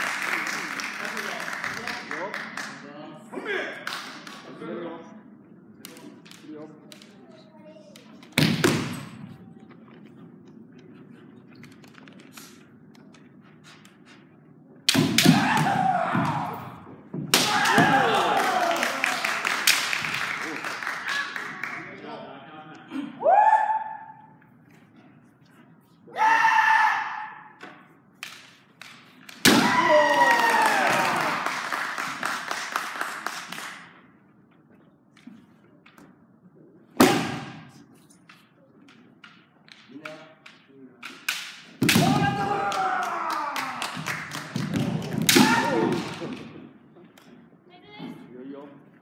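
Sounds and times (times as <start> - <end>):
fighters shouting: 17.4 - 19.1
loud falling shout: 17.4 - 19.2, 29.6 - 31.4, 42.0 - 43.8
bamboo swords clacking: 38.2 - 43.0.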